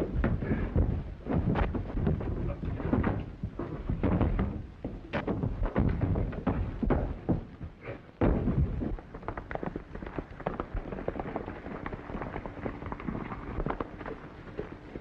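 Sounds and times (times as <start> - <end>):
heavy thumps: 0.0 - 12.0
horse galloping hoofbeats: 0.0 - 15.0.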